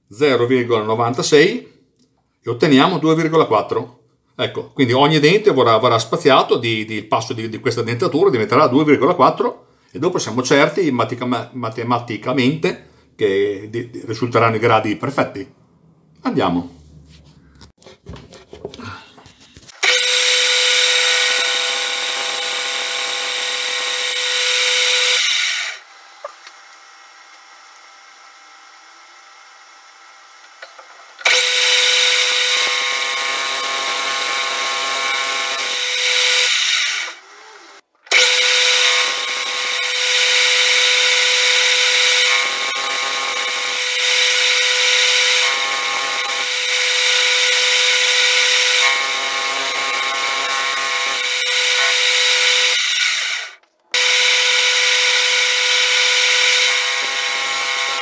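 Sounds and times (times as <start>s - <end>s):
metal lathe machining metal: 38.1s - 58.0s.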